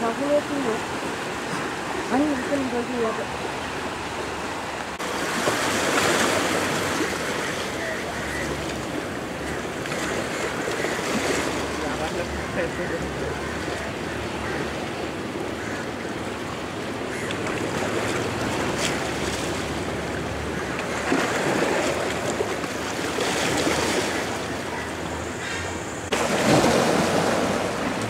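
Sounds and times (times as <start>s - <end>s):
ocean surf washing onto beach: 25.9s - 28.0s.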